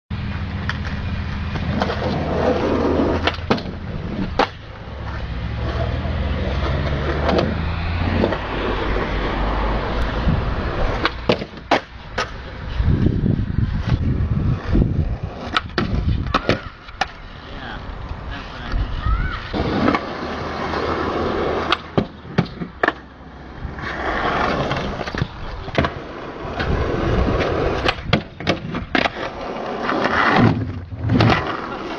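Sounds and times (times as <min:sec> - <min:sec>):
skateboard wheels rolling: 0:00.1 - 0:31.9
skateboard clacks and knocks: 0:10.9 - 0:12.4, 0:15.4 - 0:17.2, 0:21.5 - 0:23.2, 0:24.1 - 0:31.9.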